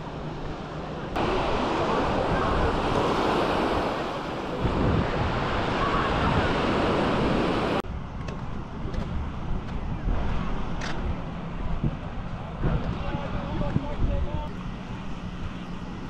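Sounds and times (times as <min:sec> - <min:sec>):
small waves breaking on beach: 0:01.2 - 0:07.8.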